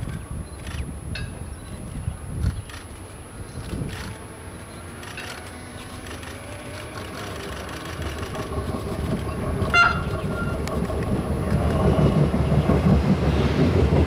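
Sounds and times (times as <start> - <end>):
electric train approaching: 0.0 - 14.0
train horn toot: 9.6 - 10.7.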